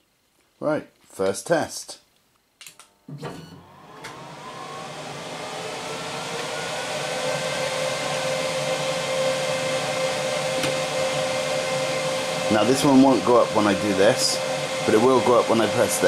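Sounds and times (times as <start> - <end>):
fan motor whirring hum: 3.6 - 16.0.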